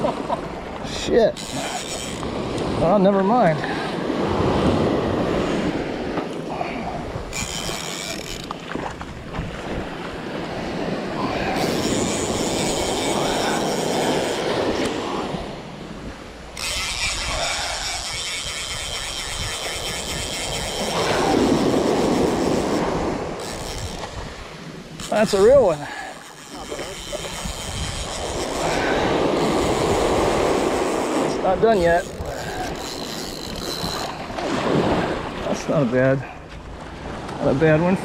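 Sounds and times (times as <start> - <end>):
surf washing on beach: 0.0 - 7.3, 8.5 - 16.6, 20.7 - 26.1, 28.6 - 32.7, 34.0 - 38.0
fly reel buzzing: 1.3 - 2.3, 7.3 - 8.6, 11.4 - 15.0, 16.5 - 24.2, 24.8 - 34.2
wind on microphone: 3.6 - 35.6.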